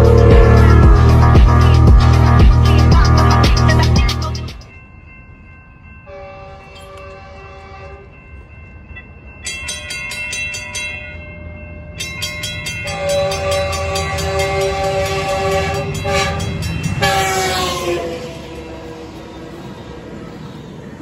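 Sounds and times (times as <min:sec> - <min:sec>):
train air horn blasts: 0:00.0 - 0:04.0, 0:06.1 - 0:08.2, 0:12.8 - 0:20.0
electronic intro music: 0:00.0 - 0:04.7
train rumble: 0:00.0 - 0:21.0.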